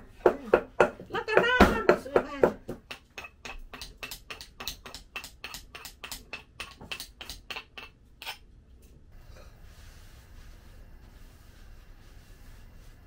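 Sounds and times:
pestle pounding in stone mortar: 0.2 - 7.9.

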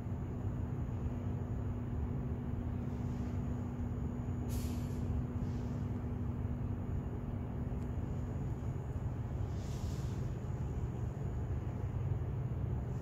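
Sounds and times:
train car hum and rumble: 0.0 - 13.0
air hiss: 4.5 - 6.2, 9.0 - 11.2.

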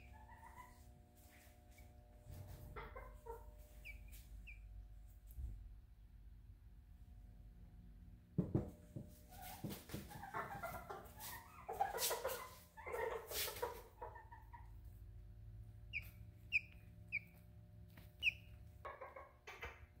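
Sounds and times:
hen clucking: 0.0 - 1.0, 1.7 - 4.8, 9.3 - 20.0
knocks: 8.4 - 9.1.

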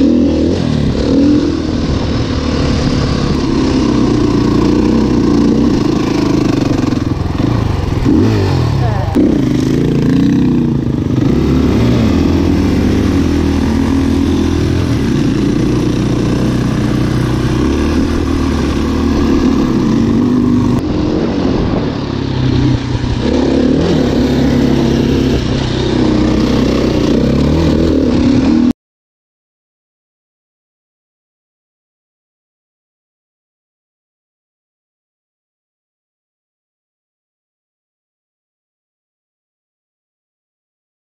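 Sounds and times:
dirt bike engine revving: 0.0 - 28.7.

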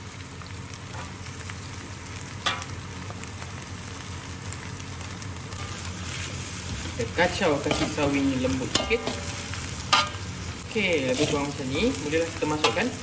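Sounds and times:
food sizzling in hot oil: 0.0 - 13.0
metal spatula scraping pan: 7.6 - 10.2, 11.0 - 11.6.

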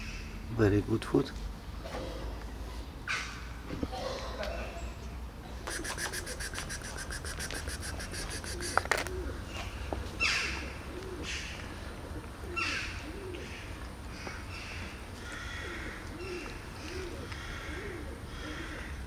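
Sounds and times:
soft low bird calls: 1.7 - 19.0
bird trilling: 5.7 - 9.4.

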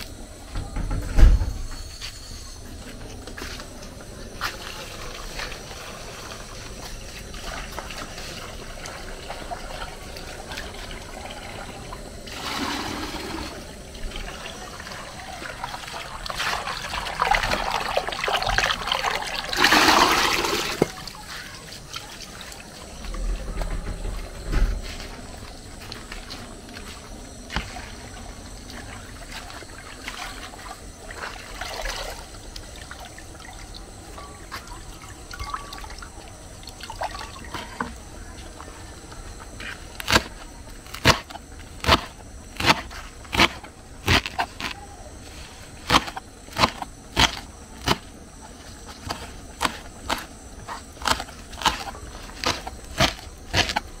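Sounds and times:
water running into a bowl: 4.4 - 22.7, 27.7 - 38.8.

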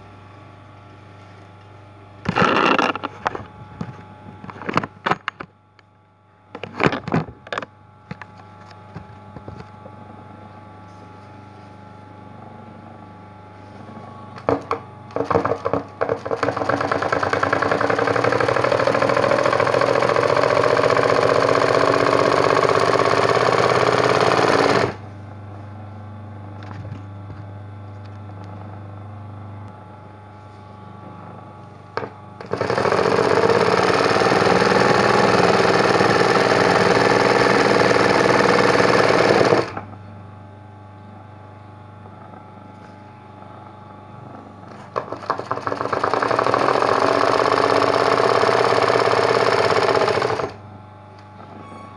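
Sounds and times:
sewing machine stitching fast: 15.2 - 25.0, 32.4 - 39.8, 44.9 - 50.6.

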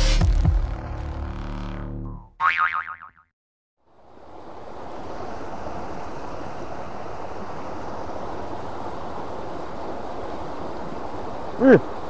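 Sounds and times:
river water rushing: 3.9 - 12.0.

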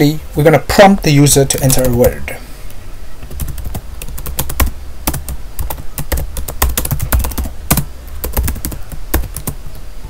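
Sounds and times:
keyboard typing: 1.5 - 2.2, 3.2 - 9.6.

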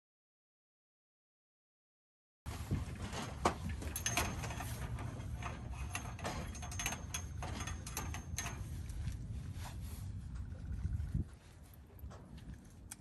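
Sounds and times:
steady low rumble: 7.2 - 13.0.

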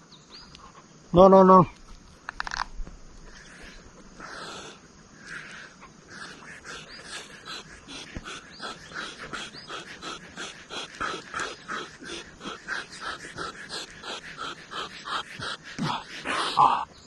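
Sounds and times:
dog panting: 5.3 - 16.6.

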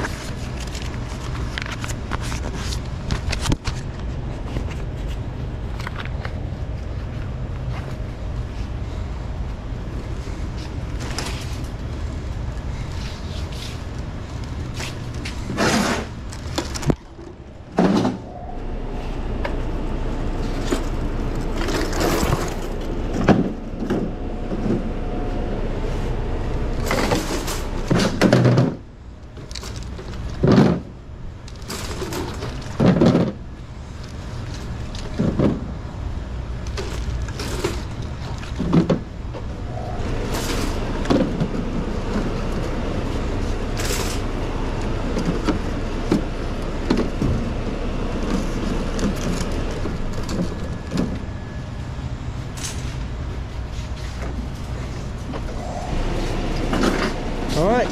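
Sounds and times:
steady background noise: 0.0 - 57.9
plastic bottles knocking and thudding: 32.2 - 33.4.

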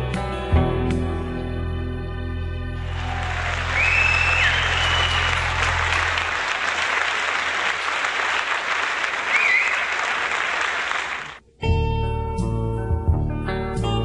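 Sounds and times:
audience applauding: 2.8 - 11.4
short whistles: 3.6 - 5.9, 9.3 - 10.0.

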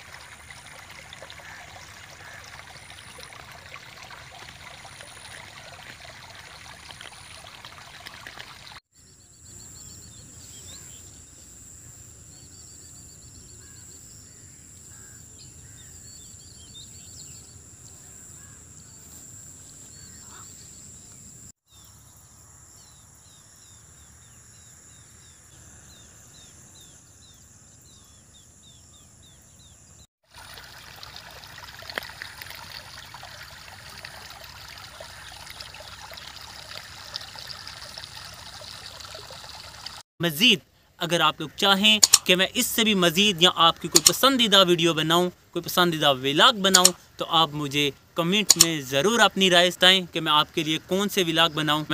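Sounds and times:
stream running over rocks: 0.0 - 8.8, 30.2 - 40.1.

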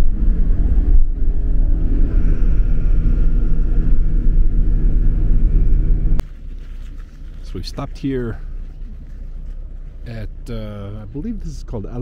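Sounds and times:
bus engine and road rumble: 0.0 - 12.0
faint whine: 0.0 - 12.0.

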